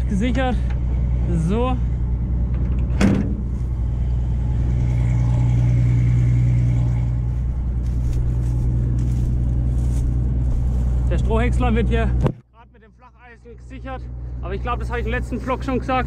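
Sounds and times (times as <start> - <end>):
diesel engine idling: 0.0 - 16.0
metal flap clanking shut: 2.5 - 3.5.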